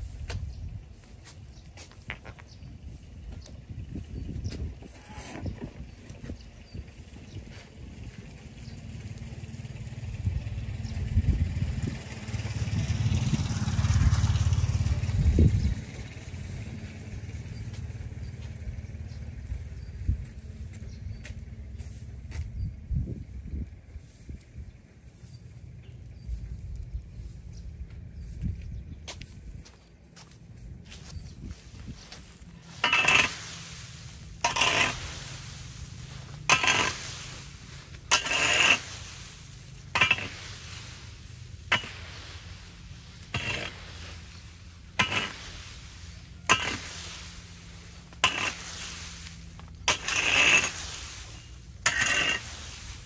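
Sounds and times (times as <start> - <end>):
rake scraping concrete: 0.0 - 11.1, 11.7 - 22.5, 30.0 - 53.0
vehicle engine running: 5.8 - 53.0
dry leaves dragging: 11.7 - 19.7, 30.2 - 53.0.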